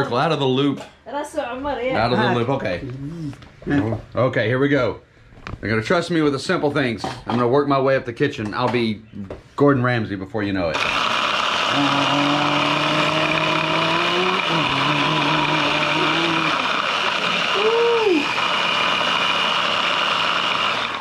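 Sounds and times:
kitchen appliance motor whirring: 0:10.7 - 0:21.0.

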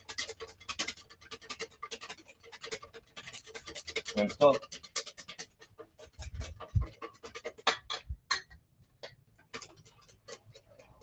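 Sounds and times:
whisk scraping metal bowl: 0:00.0 - 0:08.2, 0:09.6 - 0:11.0.

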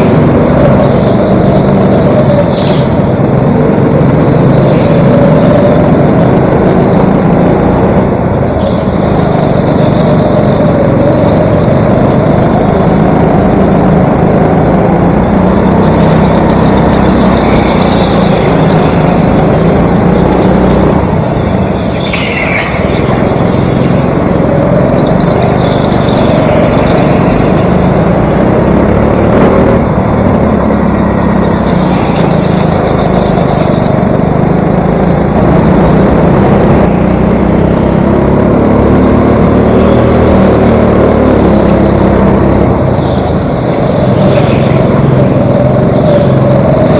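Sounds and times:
go-kart engine running hard: 0:00.0 - 0:46.9
brief high squeal: 0:21.8 - 0:23.2.

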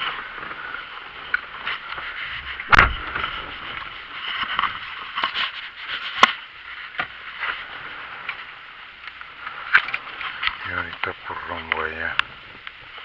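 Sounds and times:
rustling inside a car: 0:00.0 - 0:13.0
heavy thump: 0:02.5 - 0:03.7
sharp knocks: 0:02.6 - 0:03.5.

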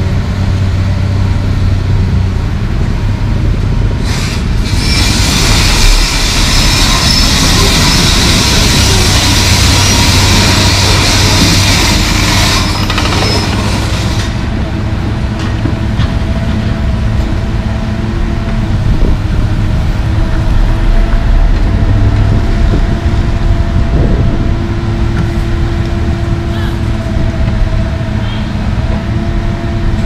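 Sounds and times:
excavator diesel engine: 0:00.0 - 0:30.0
hydraulic whine: 0:03.9 - 0:30.0
hiss: 0:04.0 - 0:12.6.

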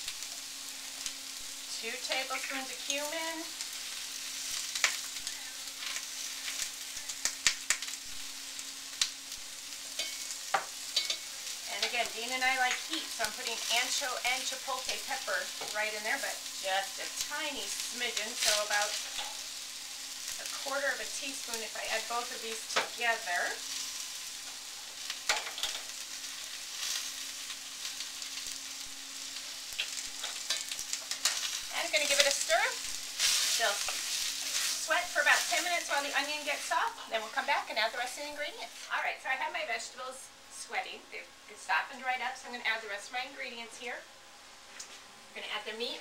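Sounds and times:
faint steady hum: 0:00.0 - 0:46.0
onion and peppers sizzling in a pot: 0:00.0 - 0:46.0
utensils clicking against pot: 0:10.0 - 0:12.0.

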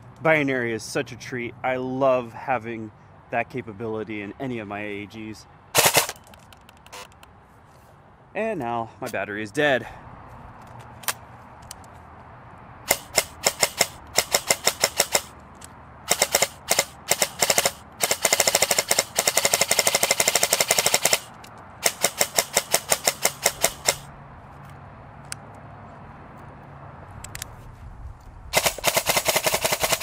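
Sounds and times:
airsoft rifle firing: 0:05.8 - 0:06.3, 0:12.9 - 0:15.3, 0:16.1 - 0:24.1, 0:28.5 - 0:30.0.

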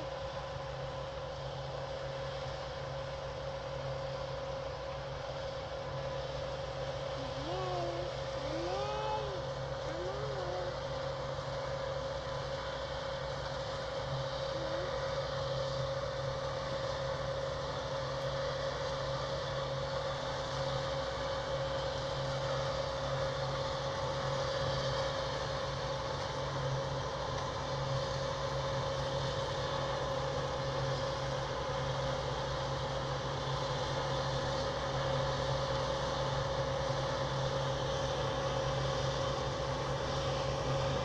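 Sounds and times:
constant machinery whine: 0:00.0 - 0:41.0
combine harvester droning: 0:05.9 - 0:20.2.

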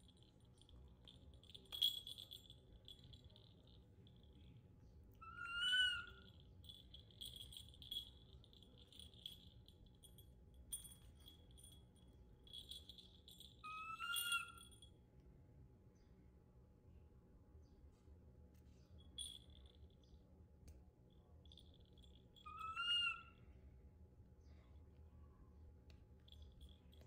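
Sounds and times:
small bell tinkling: 0:00.0 - 0:15.0, 0:19.0 - 0:20.2, 0:21.1 - 0:23.4, 0:26.2 - 0:27.0.

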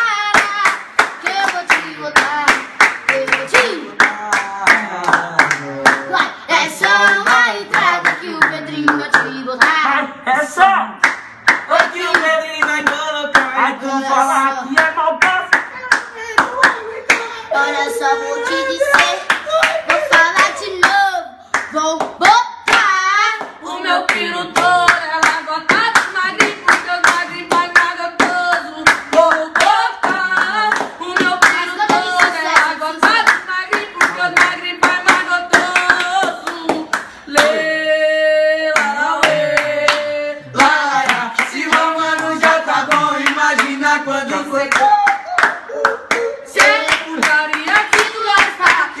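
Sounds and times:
men singing a cappella: 0:04.0 - 0:10.6, 0:12.0 - 0:20.4, 0:37.2 - 0:45.7, 0:46.3 - 0:49.0
hands beating fast rhythm: 0:21.6 - 0:37.6, 0:38.8 - 0:49.0.

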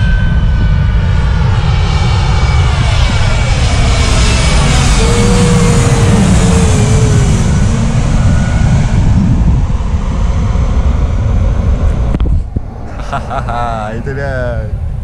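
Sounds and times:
jet airliner passing overhead: 0:00.0 - 0:15.0.

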